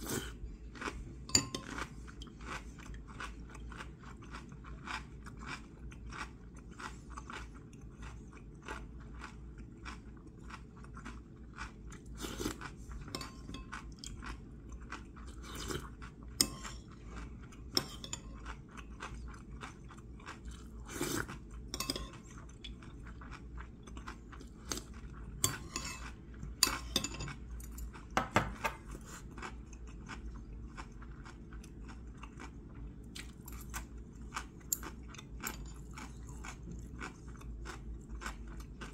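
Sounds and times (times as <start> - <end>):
chewing and crunching food: 0.0 - 38.9
chopsticks clinking against bowls: 1.3 - 1.9, 13.0 - 14.3, 17.7 - 18.5, 21.7 - 22.3, 25.4 - 28.8.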